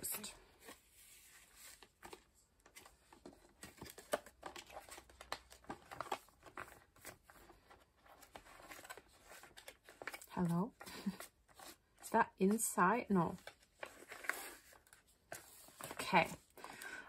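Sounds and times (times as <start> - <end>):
plastic sleeves crinkling and clicking: 1.8 - 11.8.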